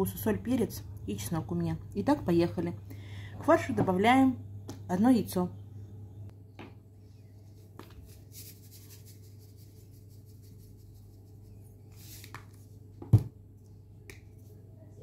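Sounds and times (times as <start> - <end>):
low steady hum: 0.0 - 15.0
salt sprinkling from shaker: 7.9 - 12.2.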